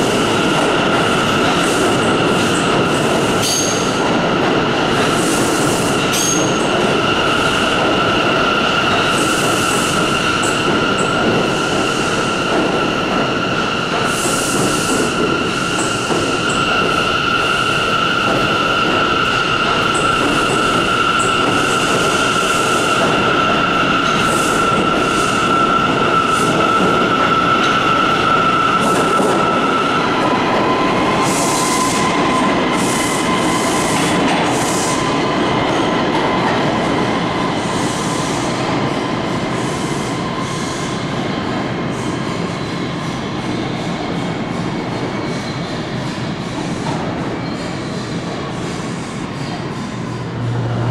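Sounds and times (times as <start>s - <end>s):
high-pitched train whine: 0.0s - 50.9s
subway train wheels rumbling: 0.0s - 50.9s.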